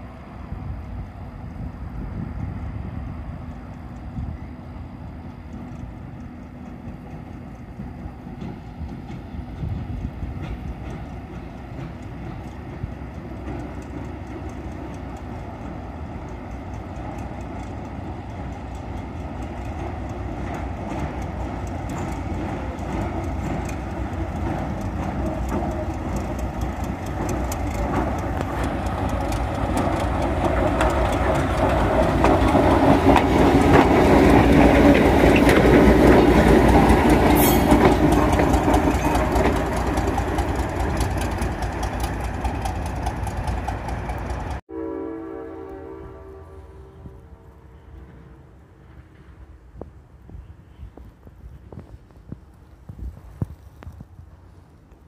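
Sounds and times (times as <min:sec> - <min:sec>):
train wheels clicking on rails: 0:00.0 - 0:44.6, 0:47.7 - 0:55.0
diesel locomotive passing: 0:00.0 - 0:55.0.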